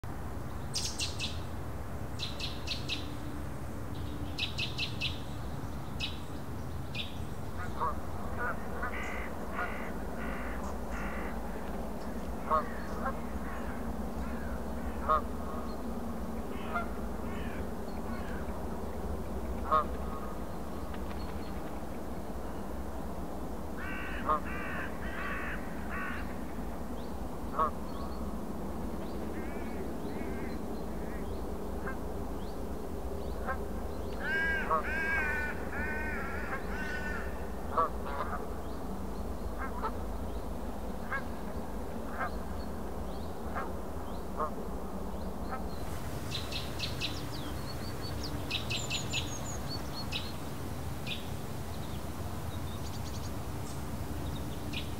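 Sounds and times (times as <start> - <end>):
bird calls and ticks: 20.7 - 21.8.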